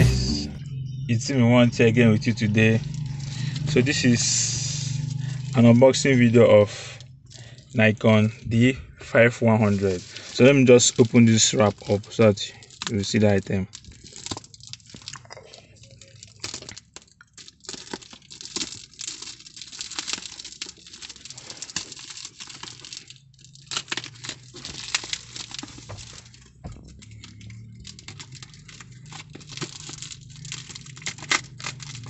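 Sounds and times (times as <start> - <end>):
bubble wrap crackling: 1.5 - 8.4, 9.4 - 32.0
tape tearing: 15.8 - 32.0.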